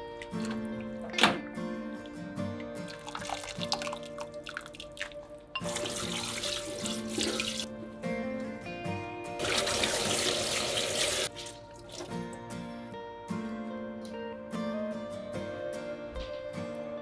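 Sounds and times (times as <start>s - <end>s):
water dripping into a pot: 2.6s - 7.6s.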